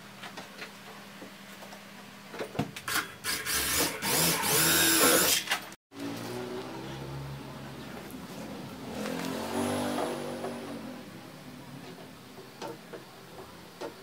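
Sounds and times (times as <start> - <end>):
electric drill driving screws: 2.9 - 5.6.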